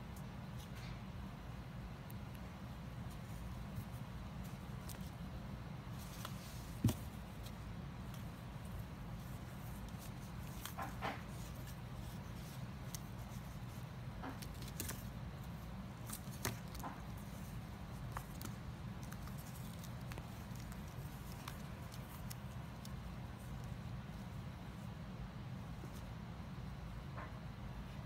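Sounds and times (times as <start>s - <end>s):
small claws scratching cardboard: 5.9s - 23.8s.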